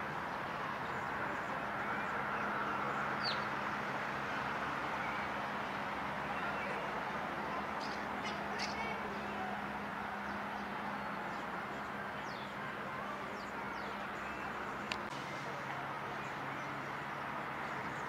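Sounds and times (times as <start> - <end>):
distant traffic: 0.0 - 18.0
birds chirping: 0.8 - 3.6, 6.2 - 9.5, 10.1 - 18.0.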